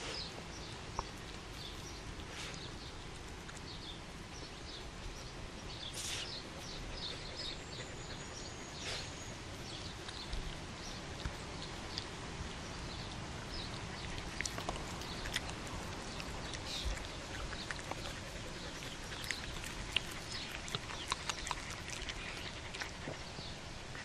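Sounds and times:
dog chewing and licking: 0.9s - 5.8s, 6.4s - 23.4s
wet mouth clicks and smacks: 13.1s - 23.2s.

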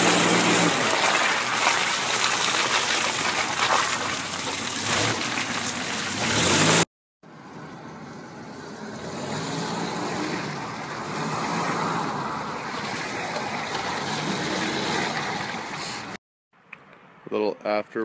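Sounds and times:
tyres rushing through mud: 0.0s - 6.9s, 9.0s - 16.2s.

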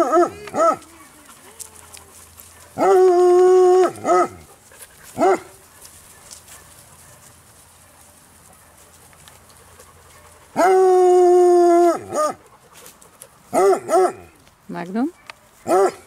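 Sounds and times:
hound howling: 2.8s - 4.5s, 10.6s - 12.4s.

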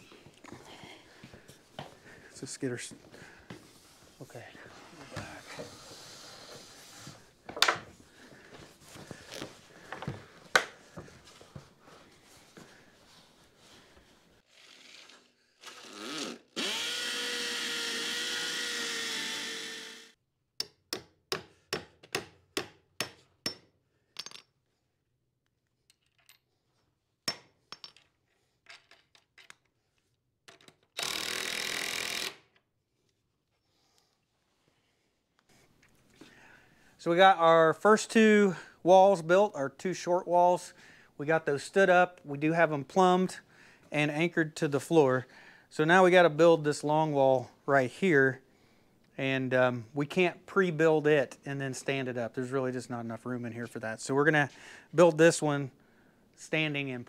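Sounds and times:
cordless impact driver running: 15.6s - 20.1s.

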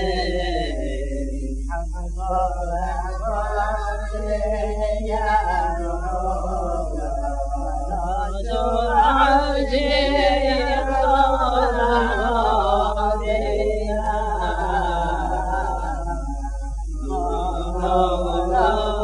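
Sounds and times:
man singing unaccompanied: 0.0s - 19.0s
steady low hum: 0.0s - 19.0s.

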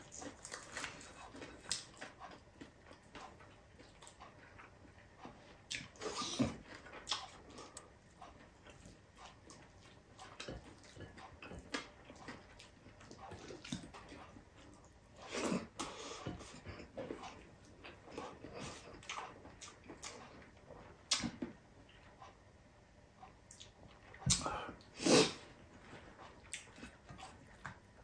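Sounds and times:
person chewing and lip smacking: 0.0s - 22.4s, 23.2s - 25.0s, 26.2s - 28.0s.

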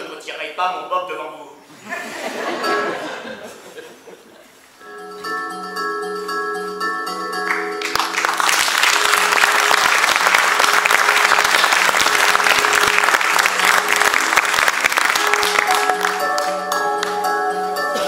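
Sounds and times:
quiet music: 4.8s - 18.0s
audience applauding: 7.5s - 17.1s.

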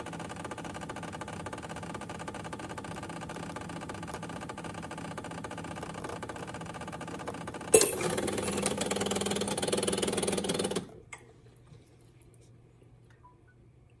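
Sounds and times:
espresso machine pump humming: 0.0s - 11.1s.

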